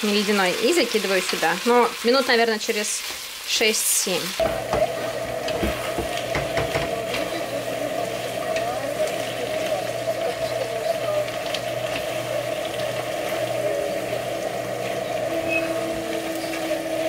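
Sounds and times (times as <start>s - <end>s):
food sizzling in a wok: 0.0s - 17.0s
steady hum: 4.4s - 17.0s.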